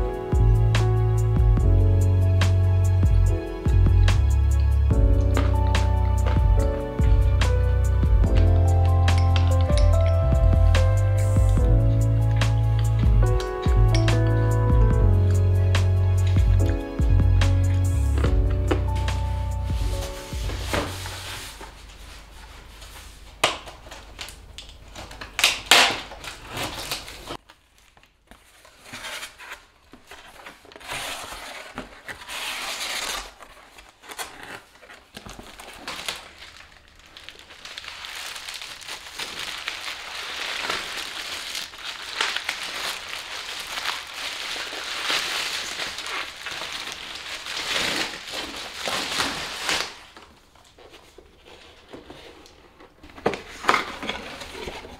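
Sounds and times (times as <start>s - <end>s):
bubble wrap crinkling in a box: 18.8s - 54.9s.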